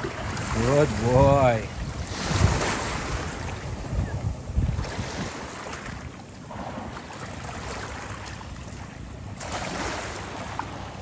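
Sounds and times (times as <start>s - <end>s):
wind on microphone: 0.0s - 8.1s
waves washing against rocks: 0.0s - 8.2s, 9.3s - 11.0s.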